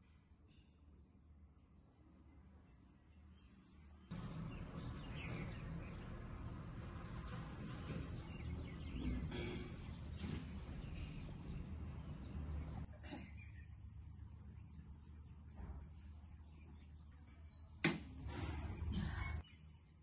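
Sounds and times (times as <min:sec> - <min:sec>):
steady background hum: 0:00.0 - 0:20.0.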